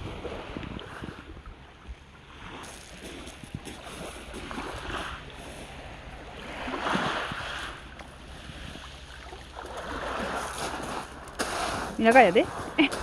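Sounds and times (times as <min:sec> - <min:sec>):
wind on microphone: 0:00.0 - 0:09.0
small waves washing on beach: 0:00.0 - 0:13.0.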